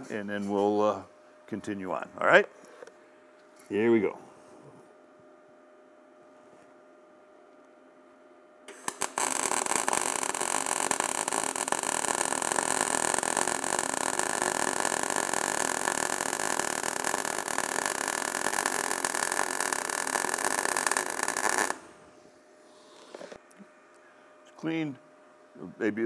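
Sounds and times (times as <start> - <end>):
welding arc crackling: 8.7 - 22.0.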